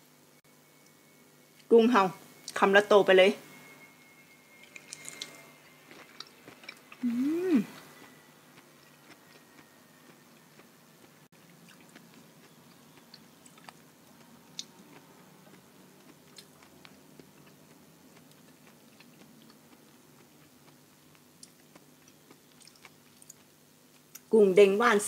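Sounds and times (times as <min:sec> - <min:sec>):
person chewing food: 0:04.6 - 0:24.3.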